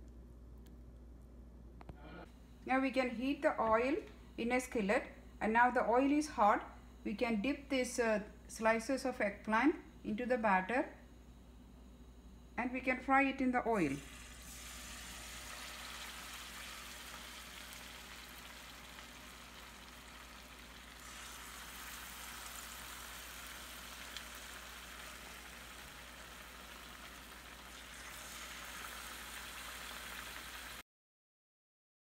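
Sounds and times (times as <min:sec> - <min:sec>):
slices frying in hot oil: 0:14.0 - 0:30.8.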